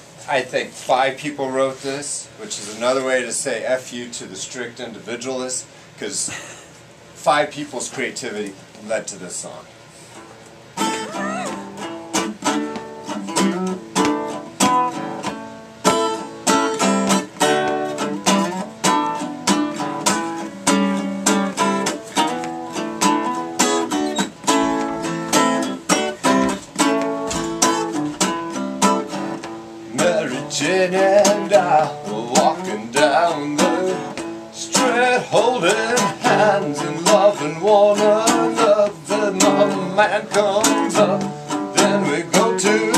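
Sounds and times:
guitar strumming chords: 10.8s - 42.9s.

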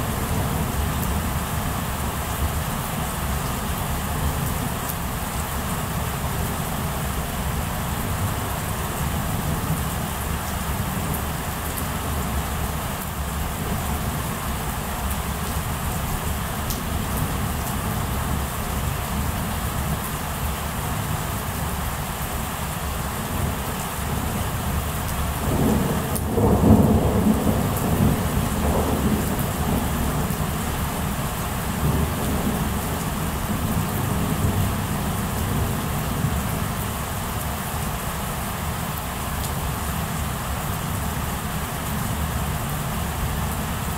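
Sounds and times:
steady rain: 0.0s - 43.9s
thunder rumble: 25.5s - 30.6s.

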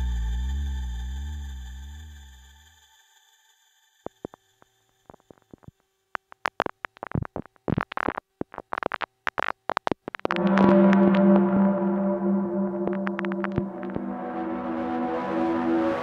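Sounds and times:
glitchy electronic clicks and crackles: 4.1s - 4.4s, 5.0s - 15.5s.

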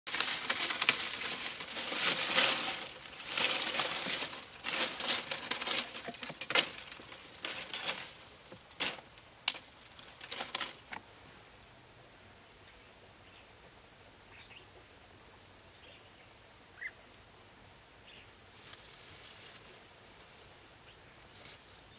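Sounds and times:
dry leaves crumpled by hand: 0.1s - 11.0s
dry sticks snapping and clicking: 0.1s - 11.0s.

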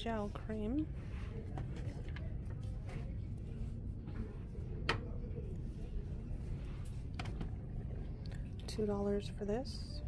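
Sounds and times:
steady low hum: 0.0s - 10.0s
faint background voices: 0.9s - 8.5s.

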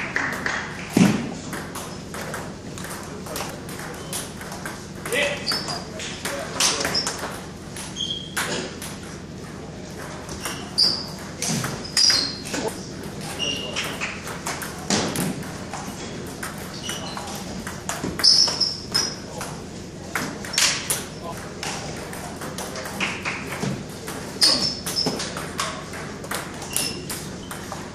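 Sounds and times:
shoe squeaks on wooden floor: 7.8s - 8.7s, 10.3s - 12.7s, 13.3s - 14.0s, 16.7s - 17.4s, 18.2s - 19.3s, 24.4s - 25.4s, 26.6s - 27.7s.

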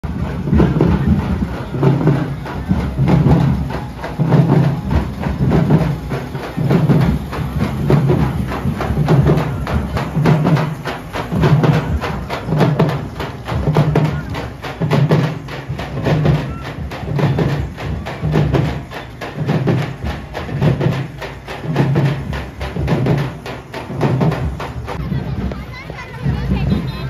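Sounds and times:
fast sharp percussion: 0.0s - 27.0s
heavy bass beat: 0.0s - 27.0s
loud procession music: 0.0s - 27.0s.

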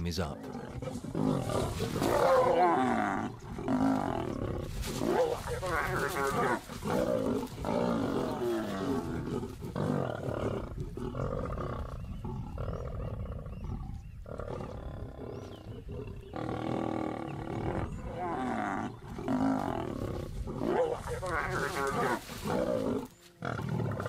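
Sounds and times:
lions growling and snarling: 0.4s - 24.0s.

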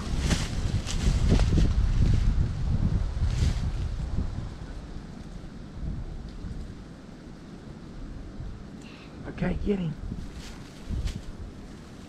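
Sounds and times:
footsteps crunching dry leaves: 0.0s - 2.5s, 10.2s - 12.0s
wind buffeting microphone: 0.0s - 12.0s.

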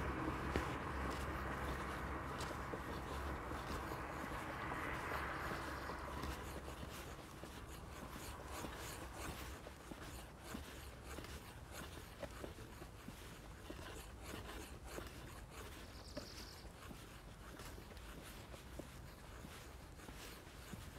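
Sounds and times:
faint rustling and scraping: 0.0s - 20.9s.

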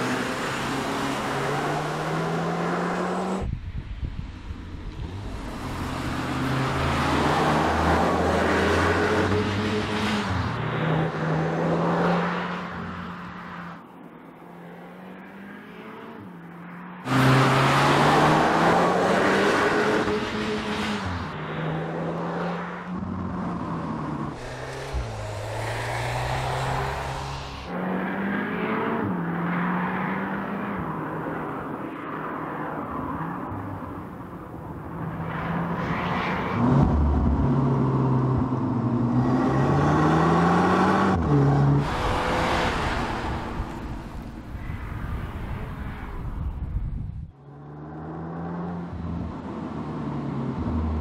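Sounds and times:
car engine accelerating hard: 23.0s - 30.6s, 35.5s - 44.5s.

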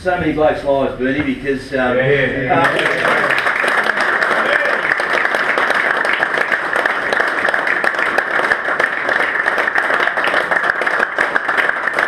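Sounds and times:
people applauding: 2.5s - 12.0s.

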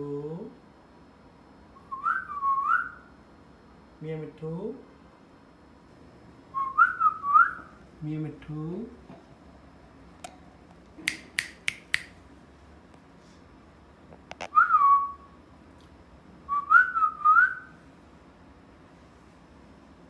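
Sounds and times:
sharp clicks: 11.0s - 12.2s.

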